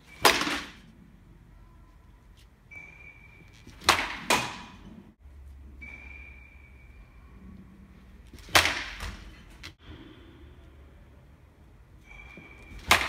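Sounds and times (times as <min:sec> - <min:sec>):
bat hitting ball: 0:03.7 - 0:04.9, 0:08.4 - 0:09.4, 0:12.7 - 0:13.0.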